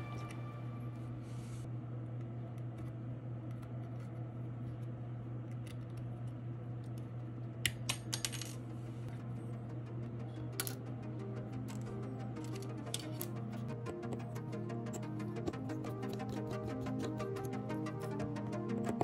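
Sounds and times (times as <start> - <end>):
steady low hum: 0.0 - 19.0
metal tools clicking: 11.8 - 13.4.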